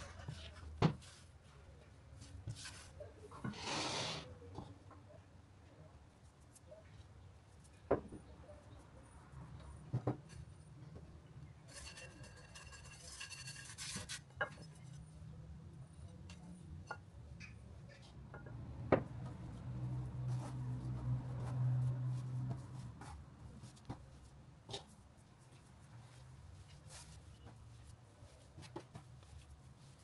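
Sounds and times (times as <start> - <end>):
dough rustling and scraping: 0.0 - 4.6, 11.7 - 15.1, 19.3 - 30.0.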